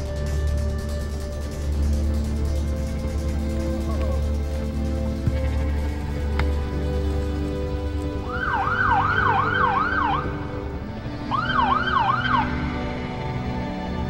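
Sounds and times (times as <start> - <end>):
background music: 0.0 - 14.0
yelping siren: 8.2 - 10.4.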